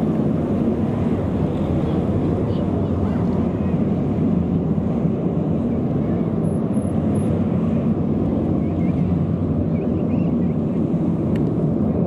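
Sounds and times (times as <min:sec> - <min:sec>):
jet engine rumble: 0:00.0 - 0:12.0.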